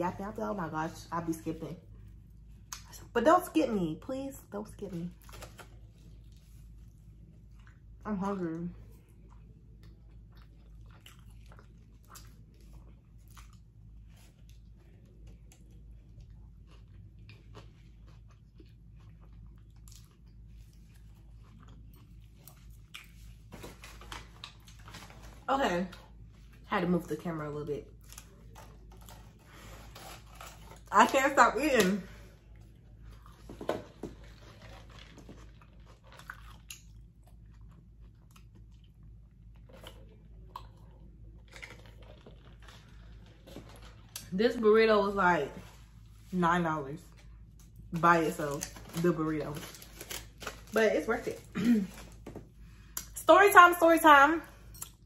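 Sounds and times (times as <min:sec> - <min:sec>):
low steady hum: 0:00.0 - 0:55.0
person chewing food: 0:05.2 - 0:08.0, 0:08.8 - 0:25.4, 0:32.3 - 0:44.3.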